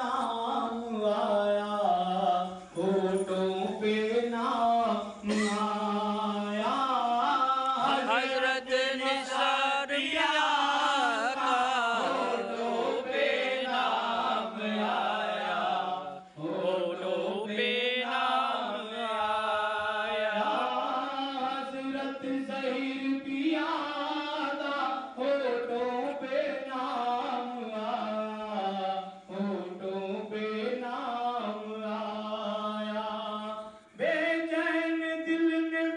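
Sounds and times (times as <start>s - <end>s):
man singing into a microphone: 0.0s - 35.9s.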